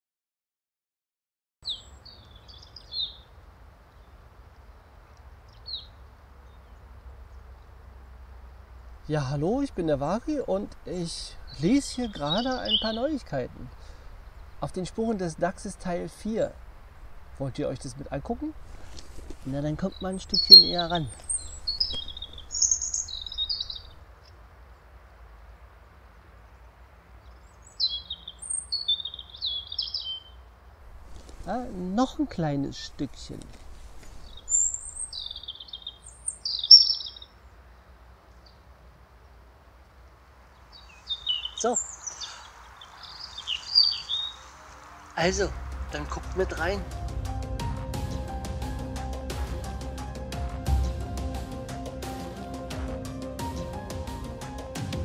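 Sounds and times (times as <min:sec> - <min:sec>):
small birds chirping: 0:01.6 - 0:07.9, 0:08.6 - 0:47.1
low outdoor rumble: 0:03.3 - 0:24.6, 0:30.5 - 0:35.4, 0:39.0 - 0:55.0.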